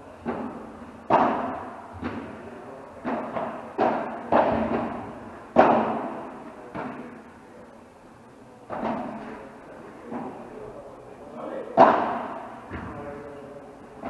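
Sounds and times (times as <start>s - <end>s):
padel ball hit by rackets: 0.2s - 2.3s, 3.0s - 7.0s.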